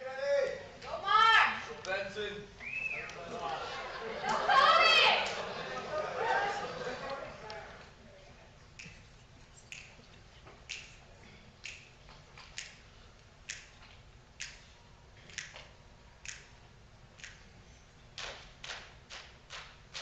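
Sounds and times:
finger snaps: 8.8 - 9.0, 9.6 - 11.0, 11.6 - 12.8, 13.4 - 16.6, 17.2 - 17.5.

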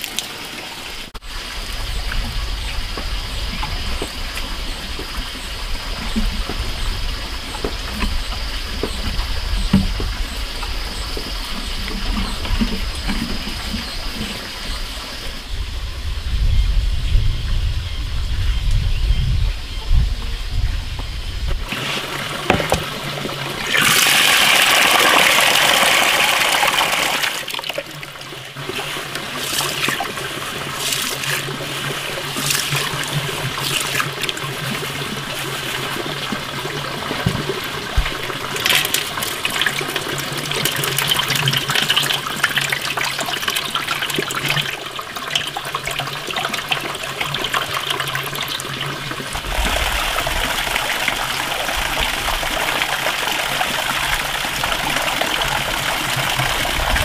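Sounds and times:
running water: 0.0 - 15.5, 21.6 - 57.0
water sloshing and splashing: 21.6 - 57.0
water being poured off: 21.7 - 57.0.

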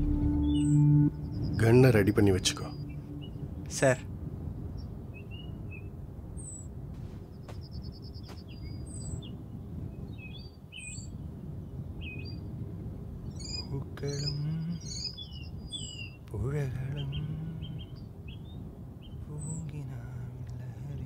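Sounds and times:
bird trills: 0.0 - 3.9
distant man murmuring a song: 0.0 - 4.1, 13.5 - 15.1, 16.2 - 18.0, 19.2 - 21.0
birds chirping: 0.0 - 21.0
low outdoor background noise: 0.0 - 21.0.

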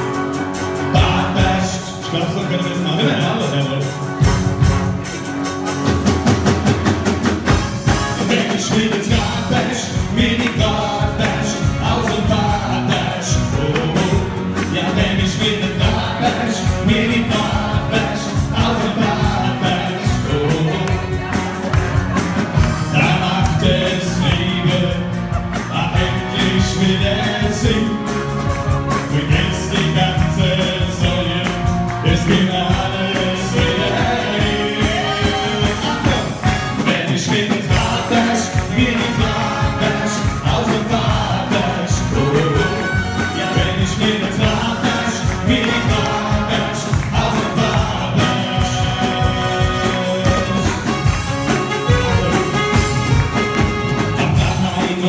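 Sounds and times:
amplified backing music: 0.0 - 55.0
men singing into microphones: 0.9 - 3.4, 8.1 - 21.6, 22.6 - 51.2, 51.8 - 55.0.

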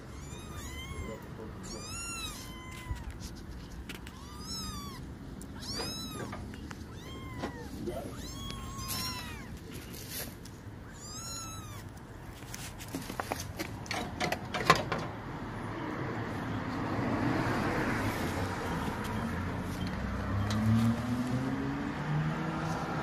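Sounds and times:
sharp clicks and knocks: 12.5 - 15.2.

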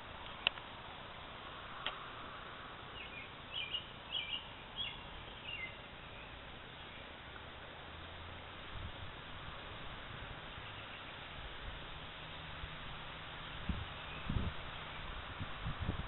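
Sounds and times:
steady outdoor hiss: 0.0 - 16.0
small bird chirping: 2.9 - 7.1.

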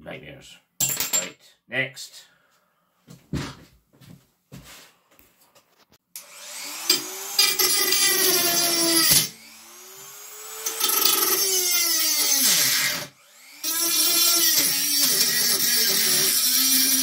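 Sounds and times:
rotary tool grinding metal: 6.2 - 17.0.

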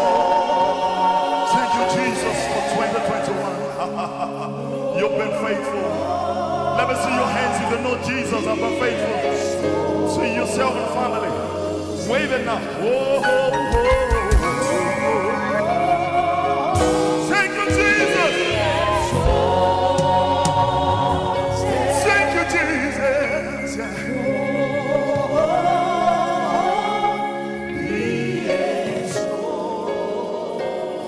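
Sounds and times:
man singing lead: 0.0 - 30.0
backing singers: 0.0 - 31.0
keyboards: 0.0 - 31.0
drums: 13.4 - 15.0, 16.6 - 22.0.

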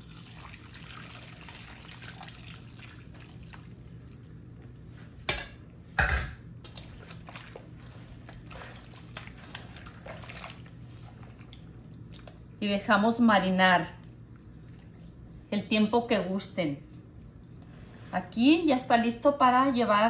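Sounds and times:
marinade pouring and dripping: 0.0 - 4.8, 6.6 - 12.6, 13.9 - 15.5
low steady hum: 0.0 - 20.0.

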